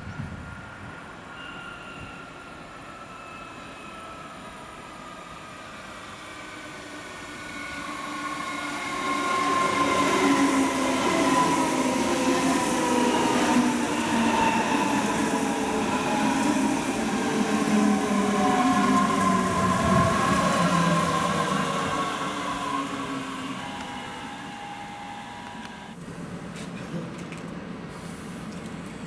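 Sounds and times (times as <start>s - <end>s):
train motor whine: 18.4s - 26.0s.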